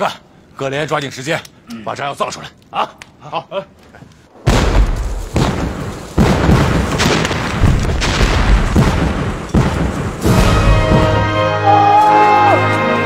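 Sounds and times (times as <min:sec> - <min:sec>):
rumbling: 0:04.3 - 0:11.4
explosions: 0:04.4 - 0:11.4.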